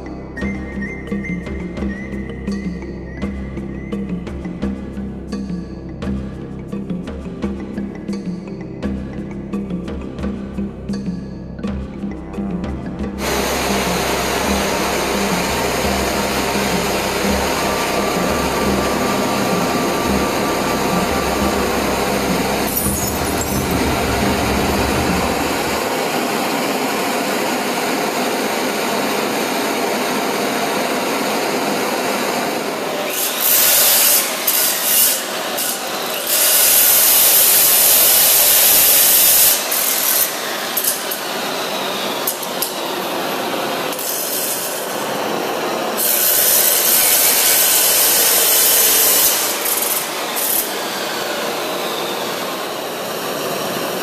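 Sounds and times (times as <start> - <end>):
chop saw grinding steel: 13.2 - 26.8, 32.8 - 54.0
electric air blower rushing: 13.2 - 54.0.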